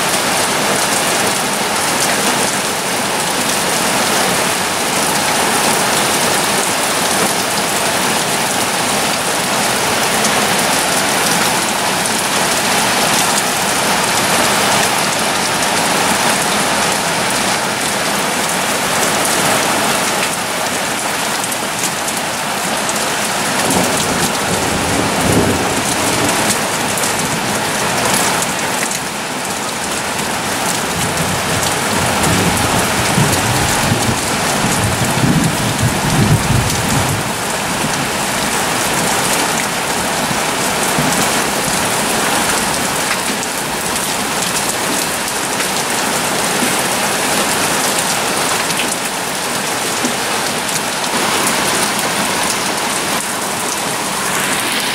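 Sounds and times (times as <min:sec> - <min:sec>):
heavy rain on lawn and pond: 0:00.0 - 0:54.9
thunder rumbling: 0:23.5 - 0:27.5, 0:30.9 - 0:39.1.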